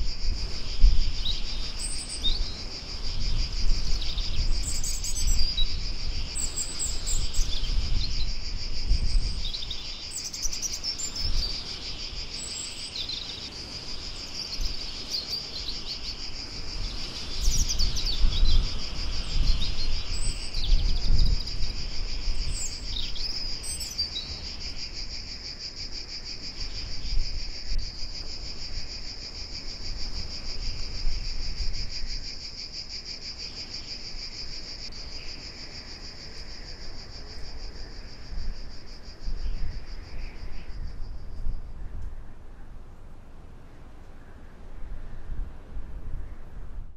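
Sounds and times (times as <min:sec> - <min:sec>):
crickets trilling: 0:00.0 - 0:46.9.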